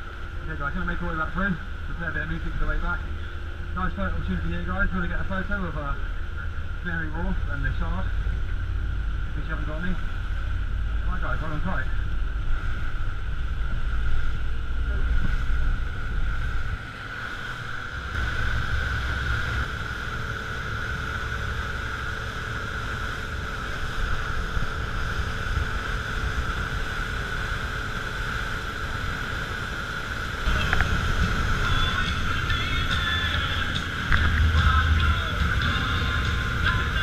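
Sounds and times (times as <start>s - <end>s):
speedboat engine whine: 0.0s - 37.0s
water rushing past hull: 0.0s - 37.0s
wind on microphone: 23.3s - 37.0s.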